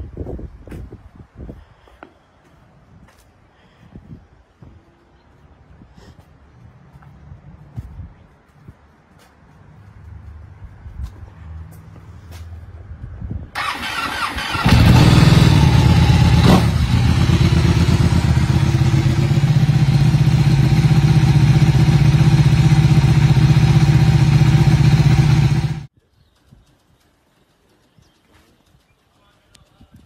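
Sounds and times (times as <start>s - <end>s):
motorcycle engine idling: 13.6s - 25.9s.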